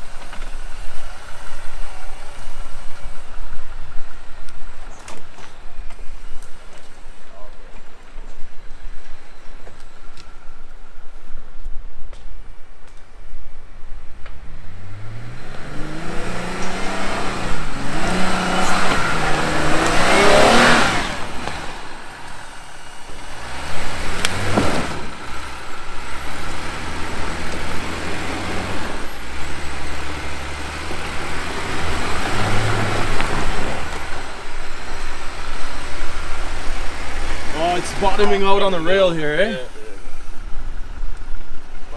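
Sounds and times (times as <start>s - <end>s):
car engine revving under load: 14.2s - 41.9s.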